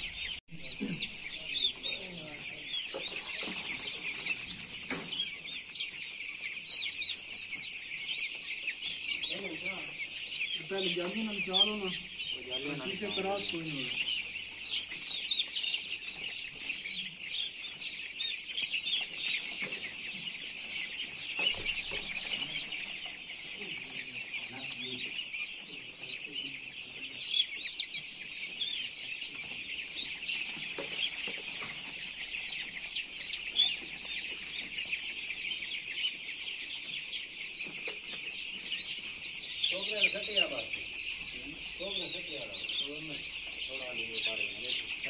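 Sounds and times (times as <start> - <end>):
chicks cheeping: 0.0 - 45.0.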